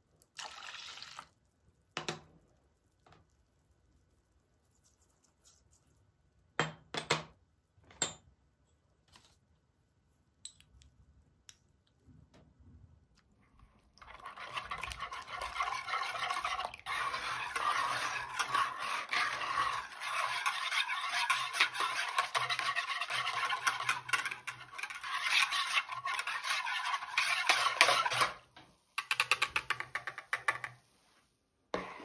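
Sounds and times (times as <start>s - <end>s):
whisk swishing in a bowl: 13.9s - 28.5s.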